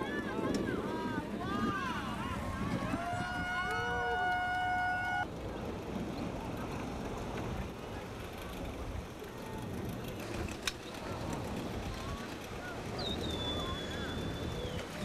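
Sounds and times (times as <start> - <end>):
boat engine idling: 5.3 - 15.0.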